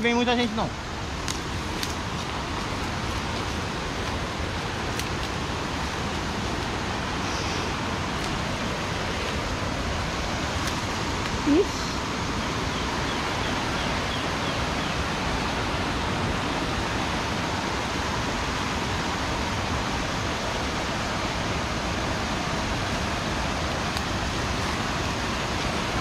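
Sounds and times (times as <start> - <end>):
waterfall roaring: 0.0 - 26.0.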